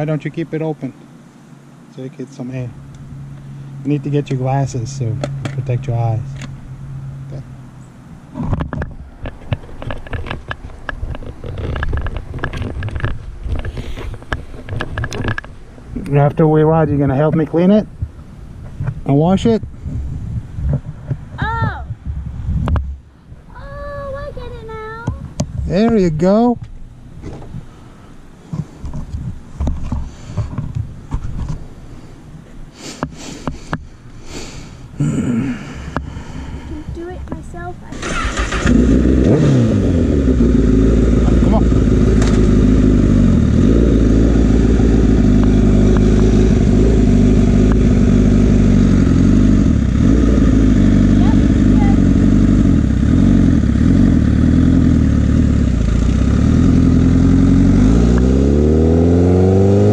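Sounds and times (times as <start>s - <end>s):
handling rumble: 0.0s - 23.1s, 24.0s - 59.9s
sharp clicks and knocks: 8.4s - 15.6s
person sniffing and breathing: 13.7s - 14.2s, 30.0s - 30.6s, 31.9s - 36.9s
wind on microphone: 17.9s - 24.5s.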